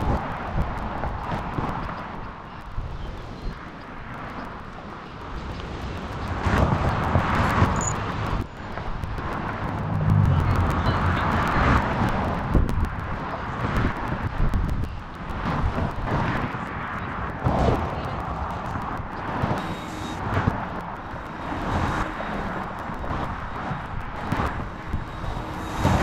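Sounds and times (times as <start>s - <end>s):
road traffic passing: 0.0s - 26.0s
low rumble: 5.9s - 26.0s.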